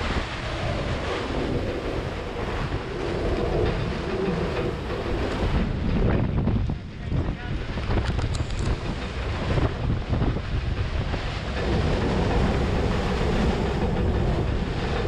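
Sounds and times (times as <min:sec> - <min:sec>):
waves: 0:00.0 - 0:15.0
wind buffeting microphone: 0:00.0 - 0:15.0.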